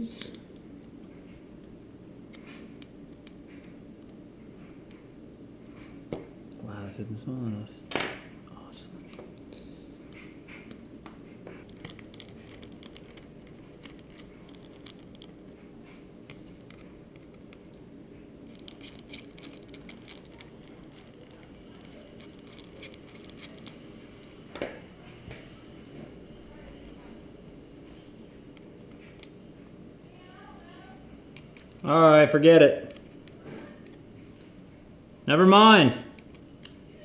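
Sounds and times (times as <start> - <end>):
steady low hum: 0.0 - 37.0
screwdriver clicking and scraping: 18.5 - 23.8.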